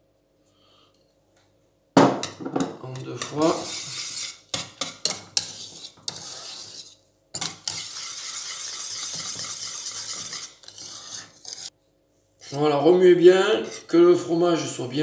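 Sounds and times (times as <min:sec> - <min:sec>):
whisk scraping a saucepan: 0:02.8 - 0:11.7, 0:12.4 - 0:14.8
whisk clicking against pan: 0:03.2 - 0:06.3, 0:07.4 - 0:11.7.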